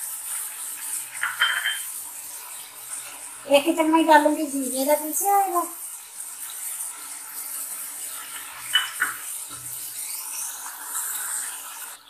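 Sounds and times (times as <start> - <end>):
sauce sizzling and bubbling: 0.0 - 12.0.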